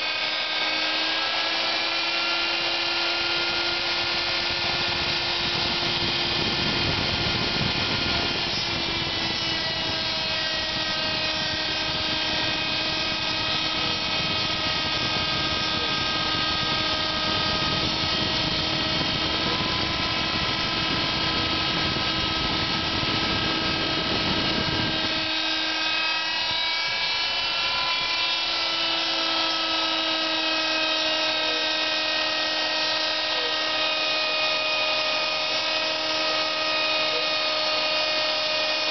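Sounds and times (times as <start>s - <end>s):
rough low milling noise: 0.0s - 38.9s
router spindle whine: 0.0s - 38.9s.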